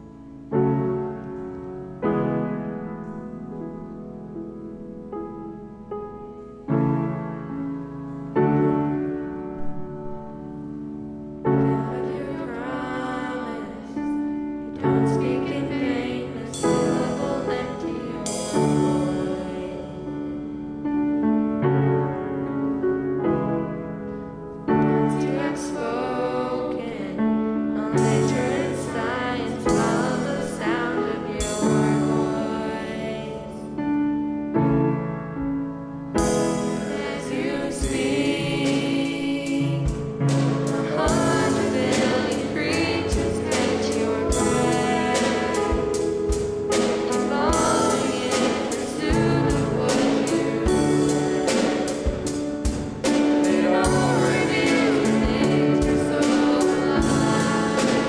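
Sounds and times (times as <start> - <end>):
electric keyboard: 0.0 - 58.0
grand piano: 0.0 - 58.0
young female voices singing: 14.8 - 20.0, 24.9 - 33.6, 36.6 - 40.0, 40.6 - 52.3, 53.0 - 58.0
drums and cymbals: 16.5 - 19.5, 36.2 - 58.0.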